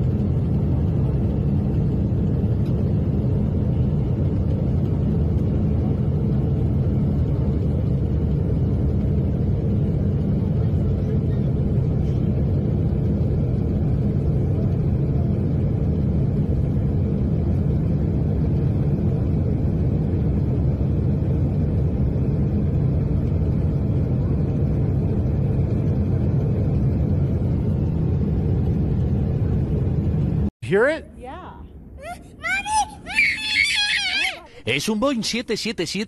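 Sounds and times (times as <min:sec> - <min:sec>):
airplane cabin rumble: 0:00.0 - 0:30.5.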